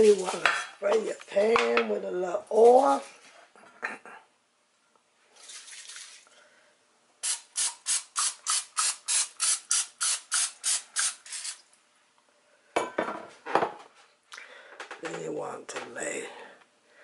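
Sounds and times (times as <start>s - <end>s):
aerosol spray spurts: 7.2s - 11.6s.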